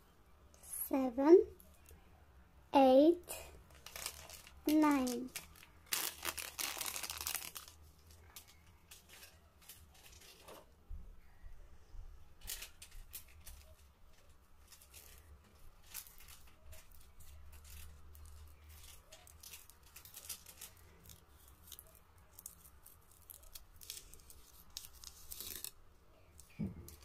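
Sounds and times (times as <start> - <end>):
foil wrapper crinkling: 3.7 - 10.7, 12.4 - 27.0.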